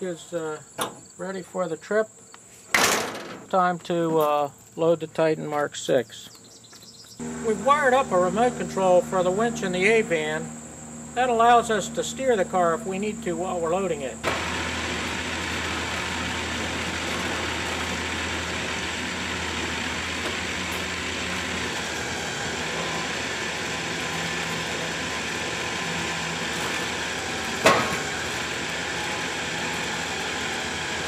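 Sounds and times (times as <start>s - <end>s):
sharp clunk: 0.8s - 1.1s, 2.7s - 3.5s, 27.6s - 28.0s
electric winch running: 7.2s - 31.0s.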